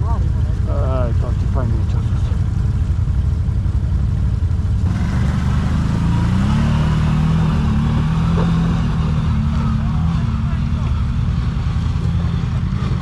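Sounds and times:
quad bike engine revving: 4.6 - 13.0.

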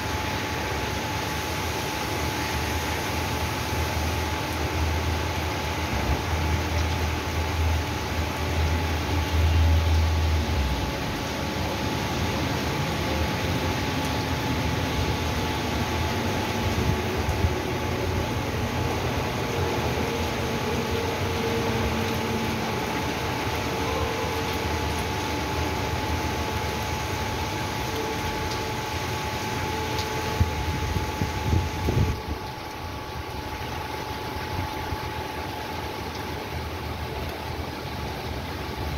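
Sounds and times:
rain splashing into puddles: 0.0 - 38.9
steady mechanical hum: 0.0 - 38.9.

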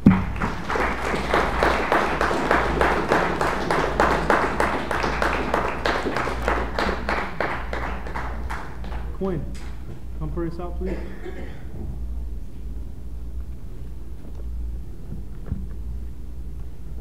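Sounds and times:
congregation applauding: 0.0 - 9.8.

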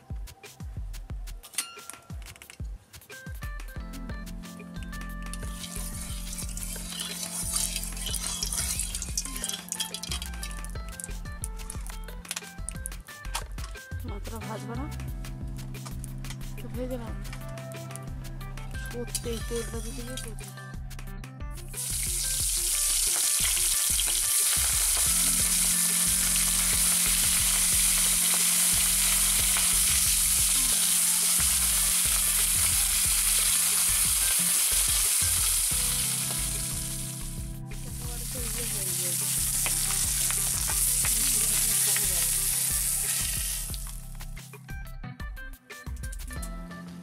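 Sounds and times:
fish sizzling in hot oil: 5.3 - 11.9, 21.8 - 44.2
metal spatula scraping a wok: 5.5 - 10.3.

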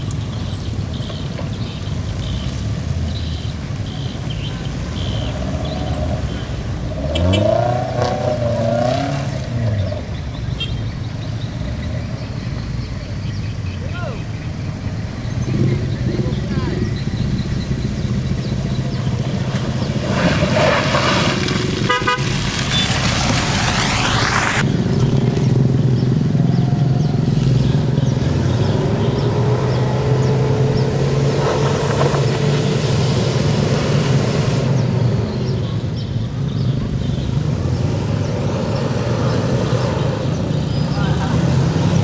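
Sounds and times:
car engine revving: 1.6 - 13.6, 14.3 - 42.0
car horn toot: 6.3 - 7.7, 10.6 - 10.8, 21.9 - 23.2.

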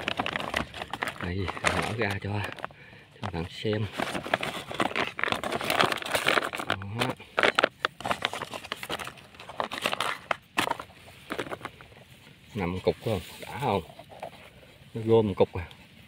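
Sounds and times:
plastic sack crinkling: 0.0 - 14.6
sharp crackles and clicks: 4.1 - 11.9.

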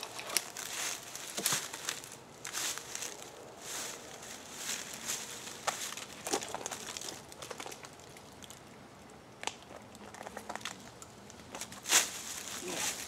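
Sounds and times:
dry leaves crackling and rustling: 0.0 - 8.5, 11.5 - 13.0.

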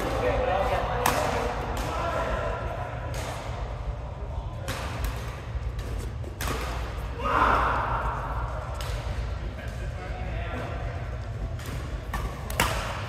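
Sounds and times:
rackets hitting shuttlecock: 0.0 - 2.2, 3.0 - 3.9, 4.6 - 7.7, 8.6 - 9.8, 11.5 - 13.0
low hum in hall: 0.0 - 13.0.

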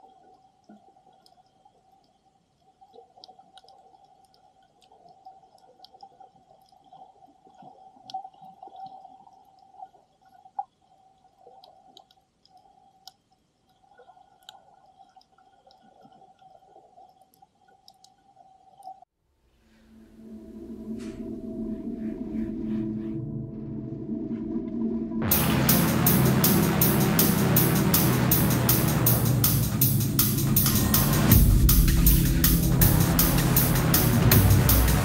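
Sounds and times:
sharp underwater clicks and crackles: 0.0 - 19.1
steady underwater tone: 19.6 - 35.0.

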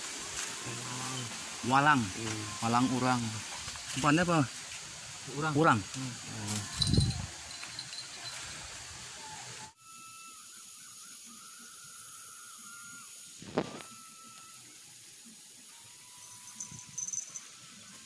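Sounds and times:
even hiss: 0.0 - 18.0
faint wavering whistles: 9.2 - 14.9, 15.6 - 18.0.

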